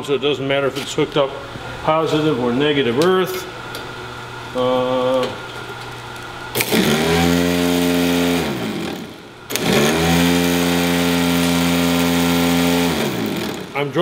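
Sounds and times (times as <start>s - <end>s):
power lead snapping: 6.5s - 10.3s
starter motor whining: 6.5s - 13.8s.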